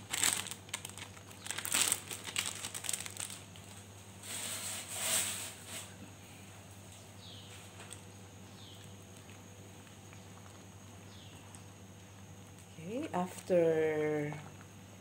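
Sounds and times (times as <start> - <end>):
plastic packet crinkling: 0.0 - 3.9.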